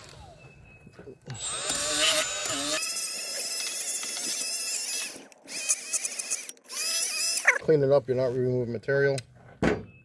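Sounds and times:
rotary tool whining: 0.0 - 7.7.

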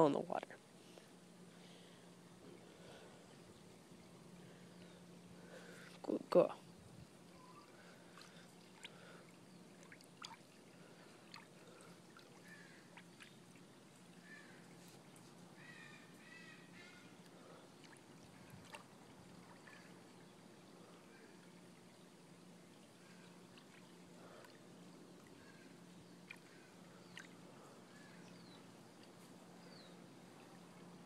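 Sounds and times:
water dripping and splashing: 8.1 - 14.2, 17.8 - 20.2.

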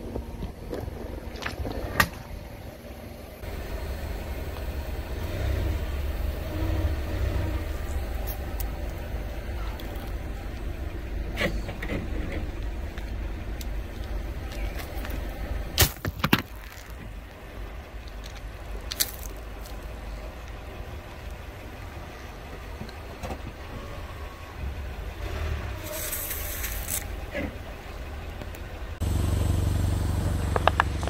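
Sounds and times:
car engine running low: 0.0 - 31.0
tyre crushing brittle objects: 15.8 - 17.1, 18.2 - 19.8.

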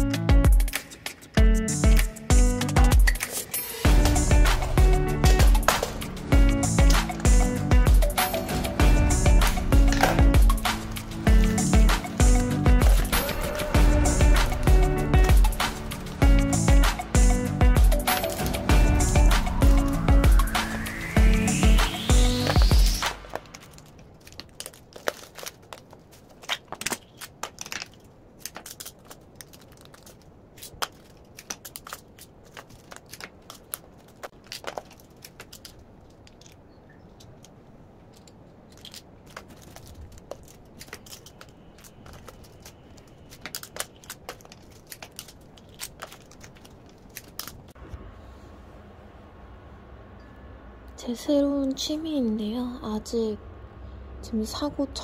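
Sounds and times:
plastic packets crinkling: 9.8 - 14.6, 22.4 - 37.5, 38.1 - 47.8.

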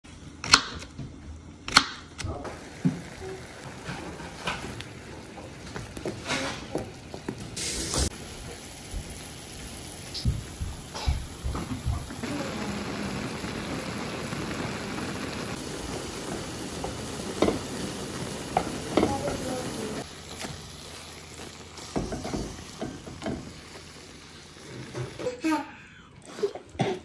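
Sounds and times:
food sizzling in a frying pan: 2.5 - 25.6.

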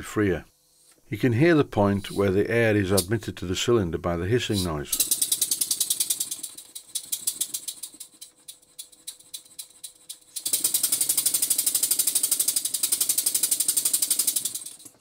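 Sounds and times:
air hissing into cylinder: 1.9 - 3.2.

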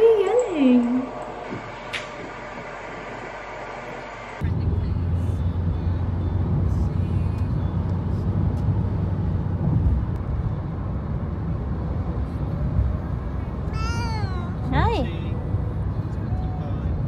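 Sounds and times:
car rumble from inside cabin: 4.4 - 17.0.

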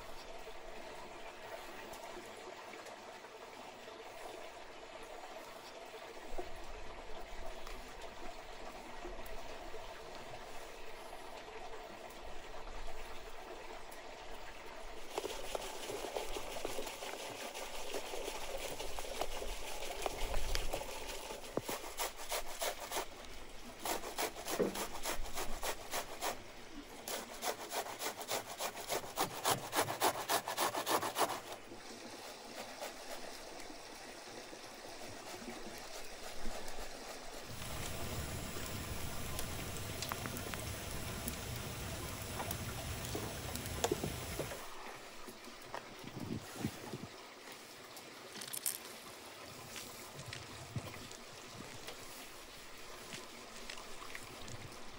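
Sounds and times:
onion rasping on grater: 20.7 - 23.1, 23.8 - 26.4, 27.1 - 31.6.

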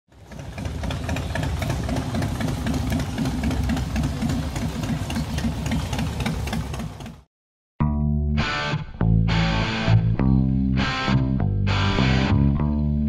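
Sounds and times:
motorcycle engines rumbling: 0.1 - 7.3.

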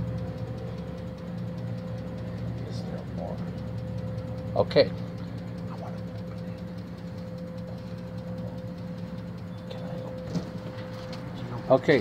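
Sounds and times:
cooling fans humming: 0.0 - 12.0.

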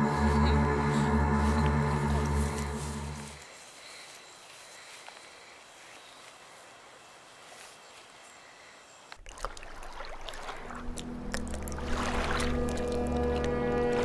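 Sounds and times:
faint outdoor hiss: 0.9 - 9.2
stream running over rocks: 9.2 - 14.0.

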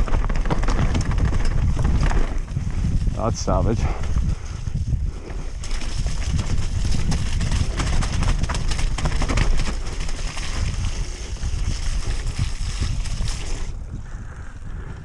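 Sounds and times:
bike clattering on rocks: 0.0 - 3.0, 5.6 - 13.6.

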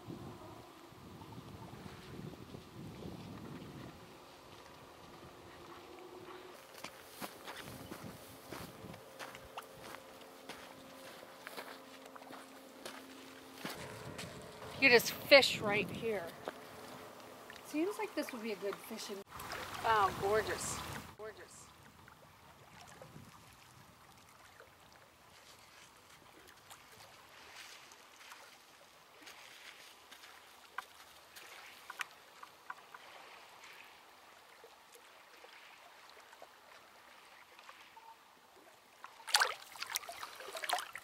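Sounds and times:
small waves lapping on rocks: 14.8 - 38.0, 38.7 - 41.0
hand splashing in water: 39.2 - 41.0.

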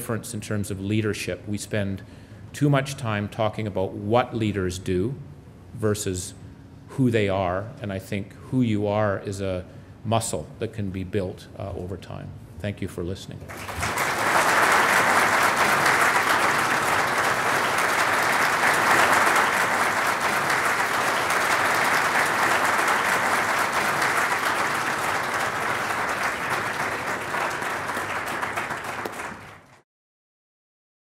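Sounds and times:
audience applauding: 13.5 - 29.8.

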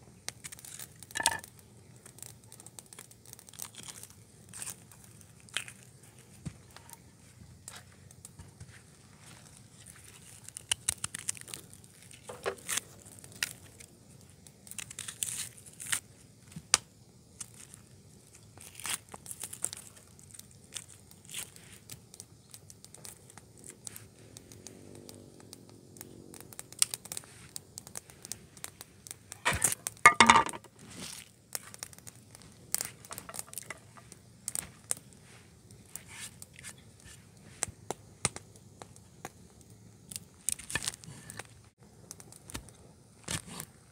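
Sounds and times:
sharp crackles: 0.0 - 43.9
crinkling and tearing: 0.3 - 1.2, 2.0 - 7.0, 9.2 - 13.9, 14.7 - 16.0, 18.6 - 22.0, 30.8 - 35.1, 40.1 - 43.7.

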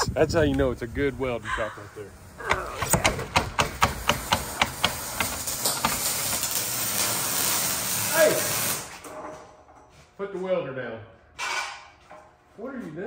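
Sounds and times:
electric welding hiss: 0.2 - 9.1.

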